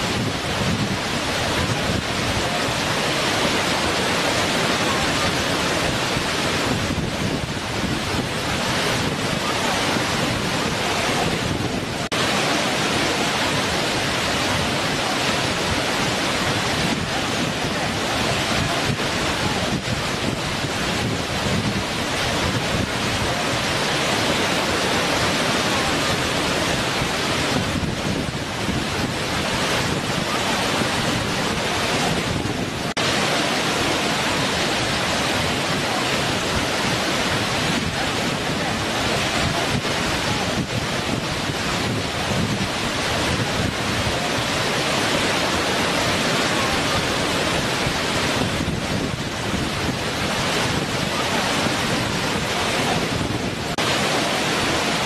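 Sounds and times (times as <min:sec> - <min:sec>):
waterfall rushing over rock: 0:00.0 - 0:55.0.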